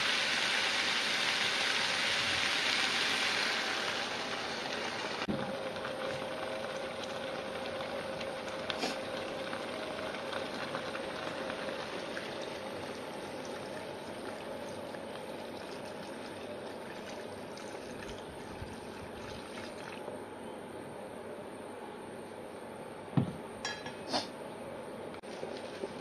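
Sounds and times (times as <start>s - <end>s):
water pouring into a wok: 0.0s - 20.1s.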